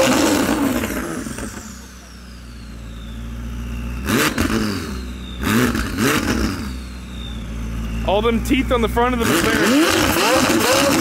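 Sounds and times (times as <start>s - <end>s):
car engine revving and idling: 0.0s - 11.0s.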